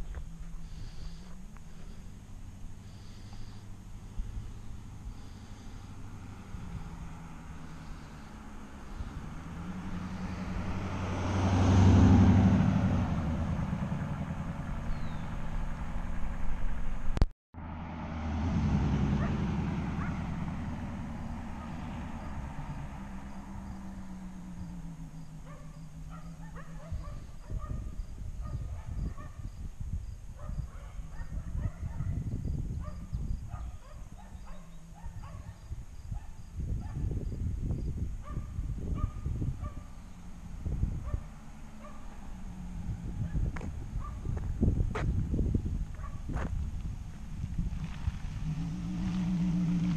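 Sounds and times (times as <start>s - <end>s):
car driving past: 0.0s - 28.1s, 38.3s - 49.9s.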